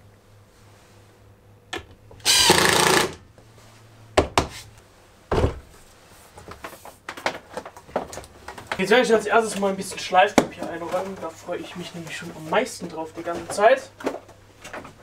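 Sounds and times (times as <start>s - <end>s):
cordless drill driving a screw: 2.2s - 3.2s.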